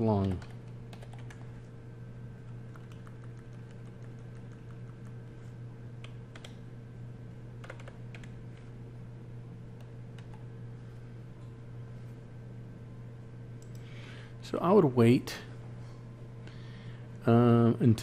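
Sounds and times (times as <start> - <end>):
steady low hum: 0.0 - 18.0
computer keyboard keystrokes: 0.2 - 1.5, 2.4 - 5.2, 6.0 - 6.6, 7.6 - 8.4, 9.8 - 10.4.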